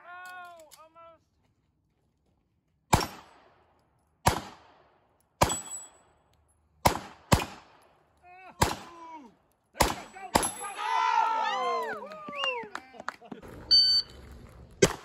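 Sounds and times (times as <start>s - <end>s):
pistol shots with echo: 2.9s - 3.6s, 4.2s - 6.0s, 6.8s - 8.0s, 8.6s - 9.0s, 9.8s - 10.6s.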